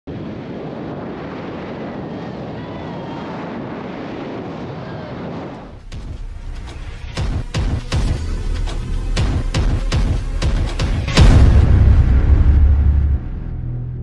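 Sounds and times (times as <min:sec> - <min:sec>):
wind rushing over microphone: 0:00.1 - 0:07.5
intro music with low beat: 0:05.8 - 0:14.0.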